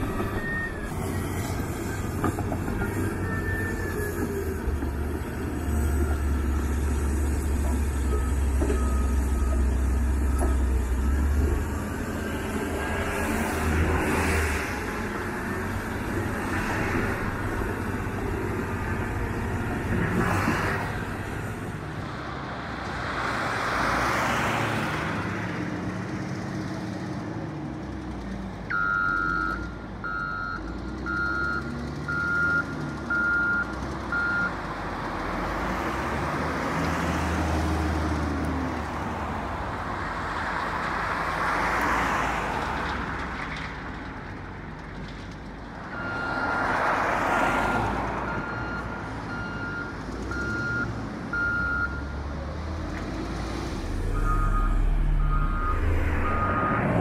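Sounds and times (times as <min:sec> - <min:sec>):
bulldozer diesel engine revving: 0:00.0 - 0:41.8, 0:45.9 - 0:57.0
reversing alarm beeping: 0:47.5 - 0:52.2, 0:54.0 - 0:57.0.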